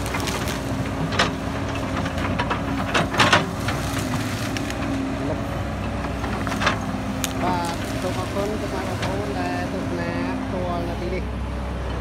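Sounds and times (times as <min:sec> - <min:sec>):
branches cracking and snapping: 0:00.0 - 0:02.3, 0:03.0 - 0:05.1, 0:06.2 - 0:09.4
excavator diesel engine running: 0:00.0 - 0:12.0.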